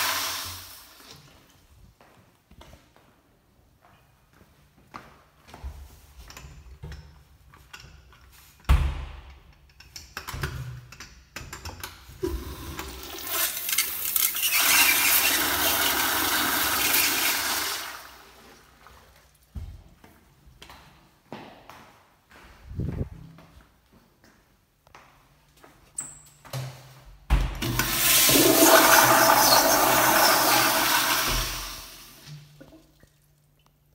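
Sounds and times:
toilet flushing: 0.0 - 1.1, 12.2 - 18.7, 27.6 - 33.0.

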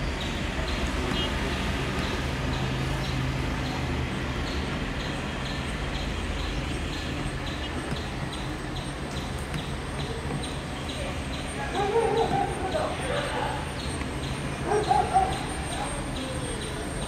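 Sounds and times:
traffic noise: 0.0 - 17.0
distant helicopter rotors: 0.1 - 17.0.

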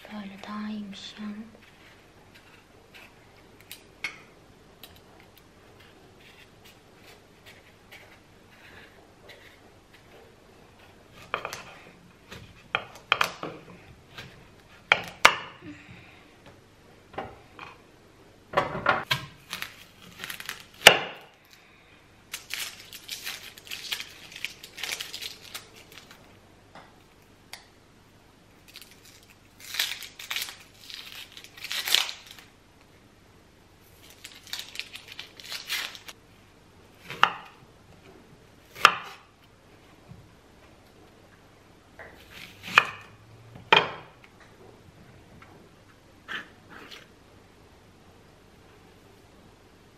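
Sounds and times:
onion skin crinkling: 19.3 - 21.7, 22.3 - 26.3, 28.6 - 32.5, 33.9 - 36.2.

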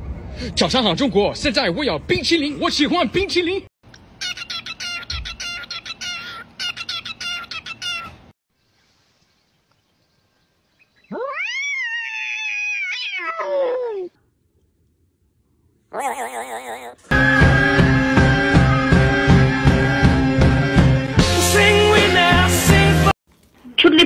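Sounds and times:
cat meowing: 11.1 - 14.1, 15.9 - 17.0.

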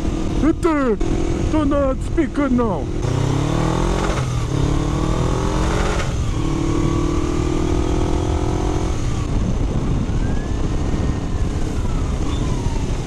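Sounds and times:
motorcycle engine accelerating: 0.0 - 13.0
faint siren: 9.7 - 13.0.

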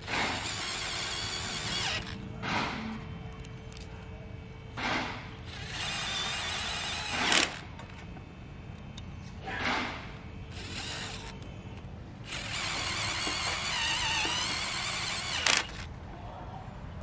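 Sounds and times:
electric drill driving screws into steel: 0.0 - 2.2, 5.0 - 7.6, 9.7 - 11.4, 12.2 - 15.9.

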